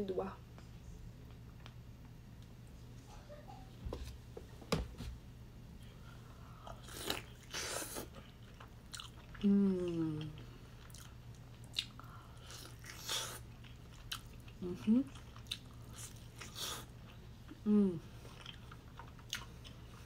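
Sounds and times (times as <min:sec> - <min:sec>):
falling vocal hum: 0:17.6 - 0:18.2.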